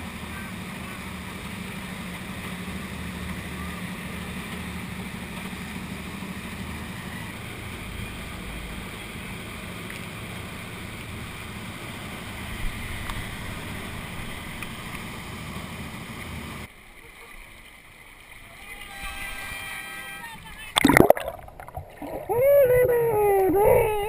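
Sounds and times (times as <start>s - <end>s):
motorboat running at speed: 0.0s - 18.0s
wake rushing along hull: 20.7s - 24.0s.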